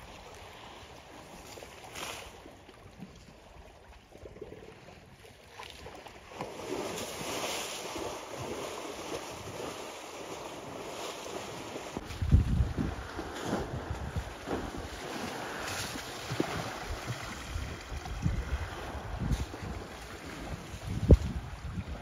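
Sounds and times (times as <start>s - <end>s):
water sloshing and splashing: 0.0s - 22.0s
wind buffeting microphone: 11.8s - 22.0s.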